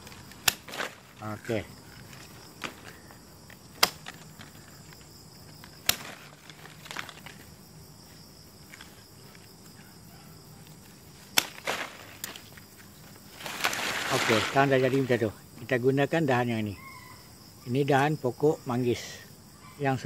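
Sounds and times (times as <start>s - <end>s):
pruning shears snipping: 0.0s - 1.1s, 2.2s - 4.9s, 5.6s - 7.4s, 10.6s - 12.6s.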